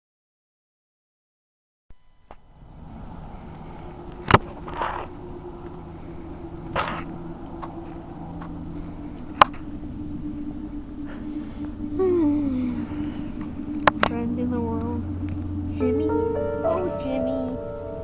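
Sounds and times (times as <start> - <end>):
low hum and hiss: 1.9 - 18.0
rushes of hissing noise: 2.6 - 15.8.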